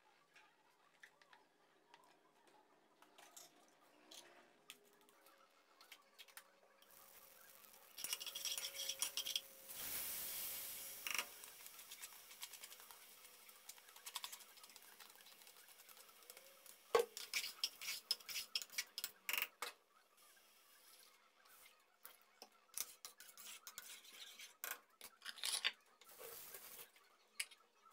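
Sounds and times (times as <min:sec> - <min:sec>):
hiss from pot on stove: 0:06.8 - 0:18.7, 0:26.1 - 0:26.8
rice clicking and rattling into pot: 0:06.8 - 0:19.5.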